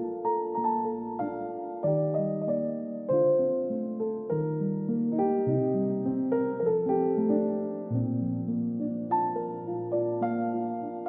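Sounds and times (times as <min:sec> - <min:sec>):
soft piano music: 0:00.0 - 0:11.0.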